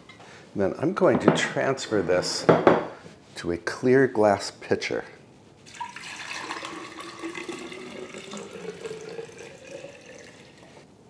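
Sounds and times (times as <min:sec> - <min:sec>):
coffee pouring into glass pitcher: 0:05.6 - 0:10.8.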